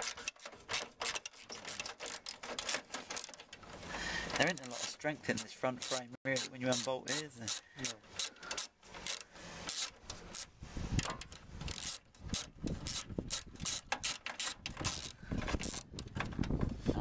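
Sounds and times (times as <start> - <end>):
metallic clicks of bolt unscrewing: 0.0 - 16.6
fingers rubbing on metal: 4.4 - 10.5.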